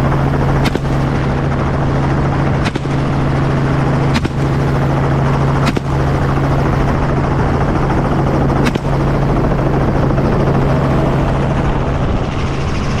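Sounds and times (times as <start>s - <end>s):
helicopter flying: 0.0s - 13.0s
rifle shot: 0.6s - 1.3s, 2.6s - 3.4s, 4.1s - 5.0s, 5.6s - 6.3s, 8.6s - 9.1s.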